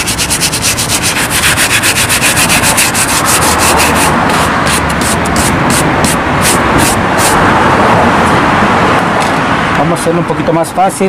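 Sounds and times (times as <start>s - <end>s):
brush scrubbing suede boot: 0.0s - 7.4s.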